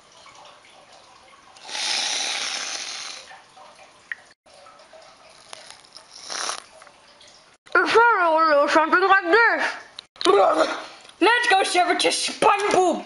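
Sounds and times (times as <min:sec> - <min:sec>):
aerosol can hissing: 0:01.6 - 0:03.2, 0:06.2 - 0:06.6.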